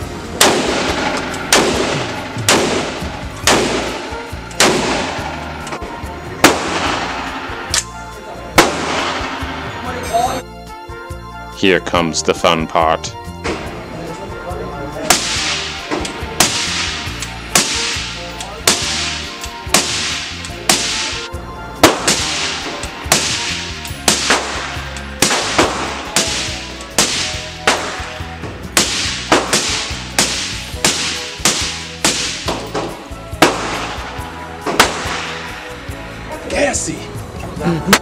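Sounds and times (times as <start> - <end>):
rifle shots ringing indoors: 0.4 - 5.3, 24.1 - 32.7.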